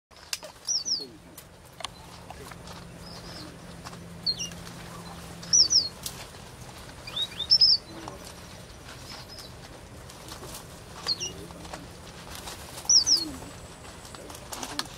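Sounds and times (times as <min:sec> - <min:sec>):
faint low hum: 0:00.2 - 0:14.9
bird chirping: 0:00.6 - 0:01.2, 0:01.8 - 0:06.0, 0:06.6 - 0:09.6, 0:11.0 - 0:11.6, 0:12.8 - 0:14.4.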